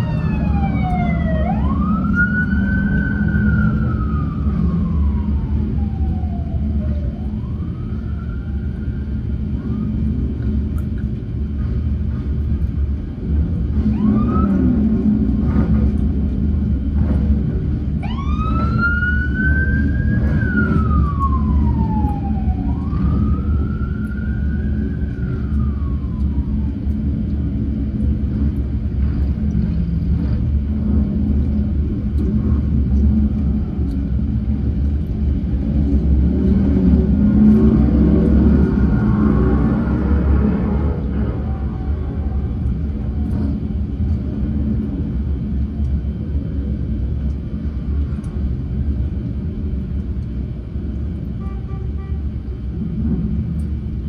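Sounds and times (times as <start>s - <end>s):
police siren whoop: 0.0s - 10.1s, 13.8s - 14.8s, 18.0s - 27.1s, 37.9s - 42.6s
police siren wailing: 0.0s - 10.4s, 13.7s - 15.1s, 17.9s - 27.2s, 36.2s - 42.9s.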